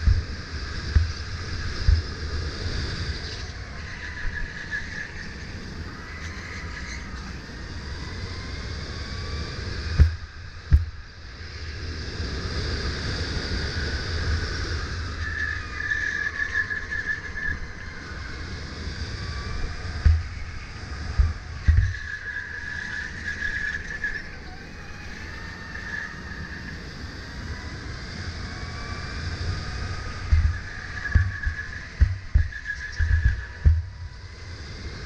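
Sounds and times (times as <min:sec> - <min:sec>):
short low thumps: 0:00.0 - 0:02.1, 0:10.0 - 0:11.0, 0:30.3 - 0:34.0
low rumble: 0:00.0 - 0:03.1, 0:09.1 - 0:11.5, 0:29.5 - 0:34.5
electric go-kart motor whining: 0:00.0 - 0:35.0.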